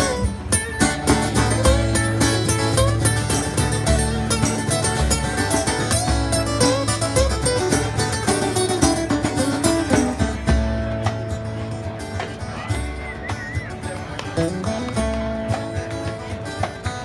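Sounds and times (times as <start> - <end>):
acoustic guitar strumming: 0.0 - 17.0
picked guitar lead notes: 0.0 - 17.0.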